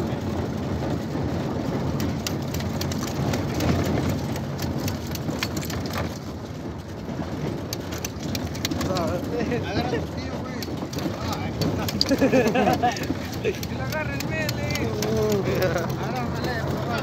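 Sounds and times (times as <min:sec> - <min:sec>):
crackly noise: 0:00.0 - 0:17.0.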